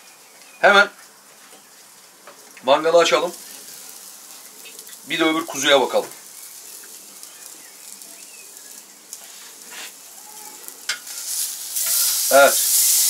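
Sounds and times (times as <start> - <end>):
steak sizzling on grill: 0.0 - 13.0.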